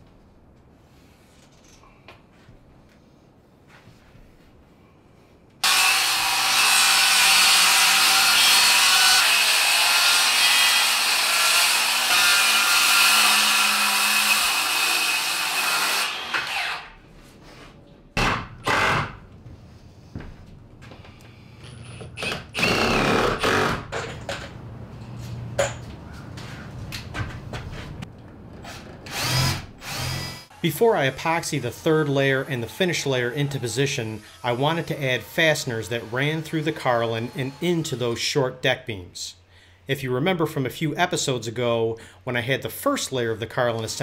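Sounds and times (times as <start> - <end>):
power tool bursts: 5.6 - 16.9
circular saw cutting wood: 5.6 - 17.0, 29.1 - 38.2.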